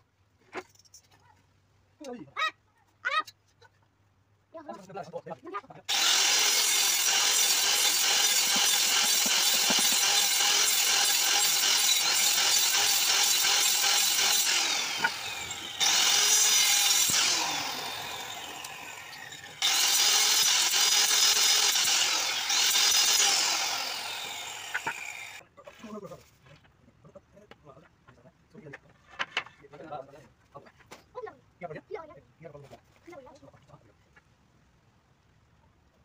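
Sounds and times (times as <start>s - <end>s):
circular saw cutting wood: 5.9s - 25.4s.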